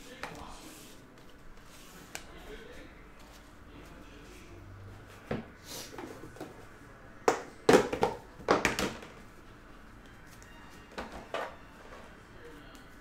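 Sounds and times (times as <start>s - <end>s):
objects tapping and knocking: 7.3s - 9.2s.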